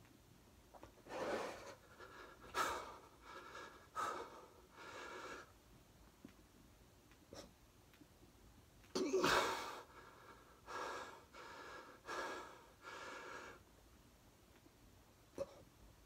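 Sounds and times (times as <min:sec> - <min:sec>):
man breathing hard: 0:01.1 - 0:05.5, 0:09.2 - 0:13.6.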